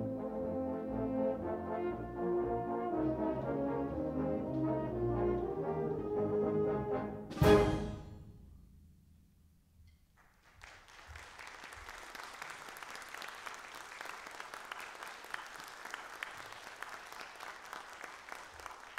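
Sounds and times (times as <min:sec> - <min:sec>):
audience applause: 0:10.2 - 0:18.9.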